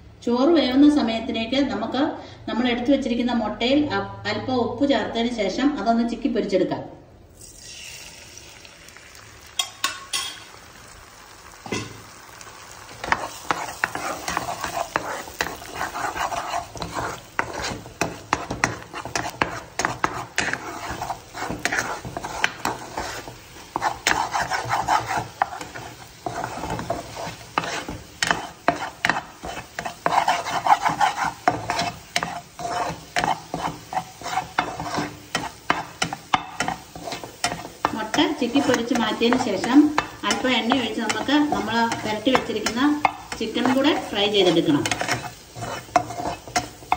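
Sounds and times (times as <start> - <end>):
eggs sizzling in a frying pan: 7.2 - 46.9
spatula scraping a pan: 9.6 - 10.6, 11.6 - 46.9.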